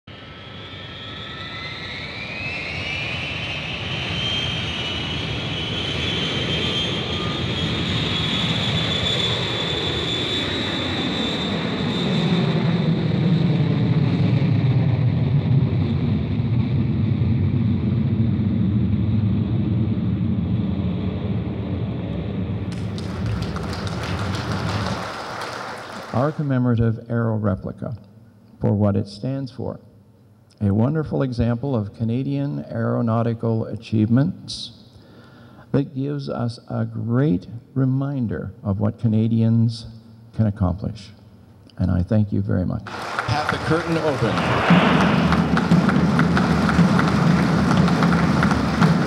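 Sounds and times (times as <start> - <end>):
jet engine high whine: 0.0 - 26.4, 42.9 - 49.0
jet engine deep rumble: 0.1 - 25.0, 42.9 - 49.0.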